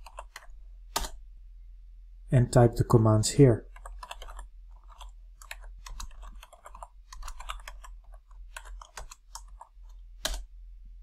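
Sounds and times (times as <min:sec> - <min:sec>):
computer keyboard typing: 0:00.0 - 0:01.2, 0:03.6 - 0:10.5
low steady hum: 0:00.0 - 0:11.0.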